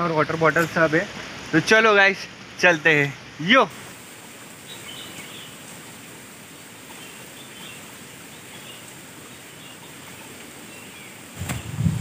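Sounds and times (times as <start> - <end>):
outdoor background hiss: 0.0 - 12.0.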